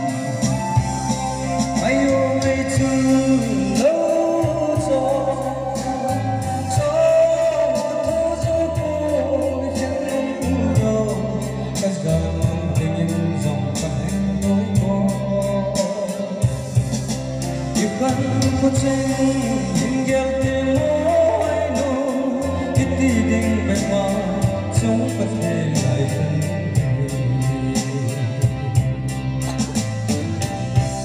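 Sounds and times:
amplified backing music: 0:00.0 - 0:31.0
man singing into microphone: 0:00.0 - 0:31.0.

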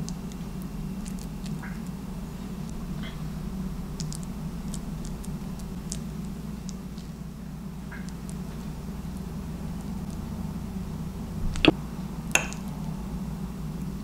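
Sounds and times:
chip scooping through guacamole: 0:00.0 - 0:01.9, 0:03.9 - 0:07.2
steady low hum: 0:00.0 - 0:14.0.

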